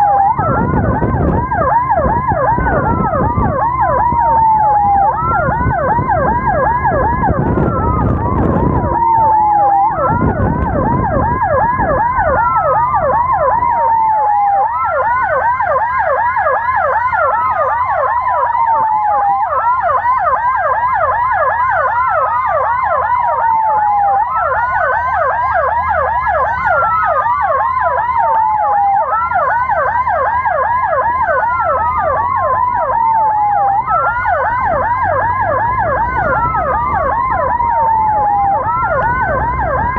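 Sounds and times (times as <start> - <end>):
ambulance siren yelp and wail: 0.0 - 39.9.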